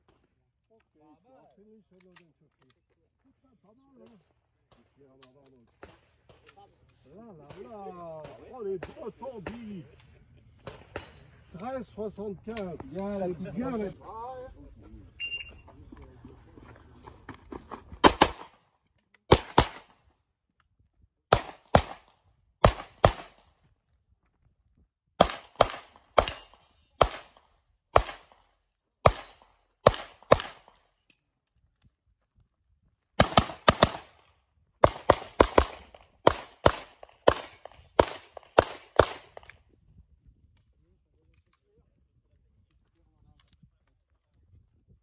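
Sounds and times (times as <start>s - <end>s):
pistol shots: 18.0s - 18.6s, 19.3s - 19.9s, 21.3s - 23.5s, 25.2s - 28.4s, 29.0s - 30.8s, 33.2s - 34.2s, 34.8s - 39.5s.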